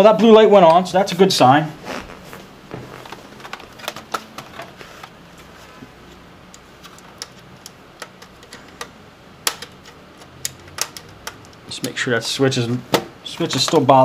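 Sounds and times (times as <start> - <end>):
hands handling laptop case: 2.3 - 10.0.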